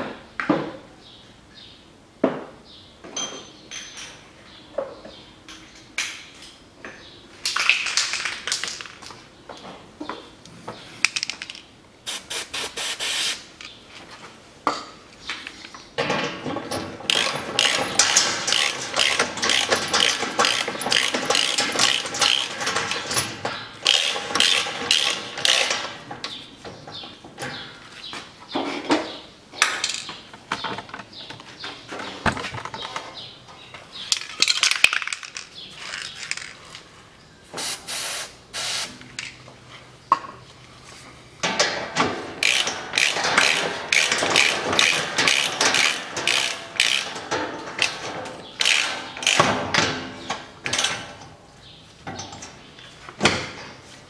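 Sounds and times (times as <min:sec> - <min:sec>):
ratchet wrench clicking: 0:17.1 - 0:23.0, 0:23.8 - 0:25.7, 0:42.4 - 0:47.2, 0:48.6 - 0:49.4.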